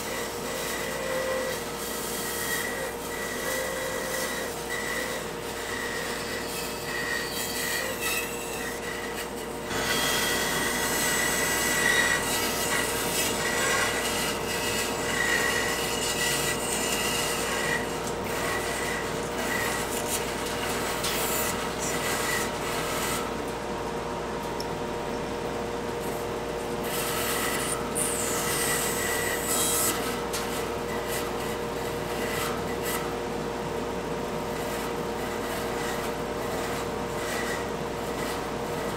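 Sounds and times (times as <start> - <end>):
saw blade cutting wood: 0.0 - 23.3, 26.9 - 33.1
band saw humming: 0.0 - 23.4, 24.8 - 33.3.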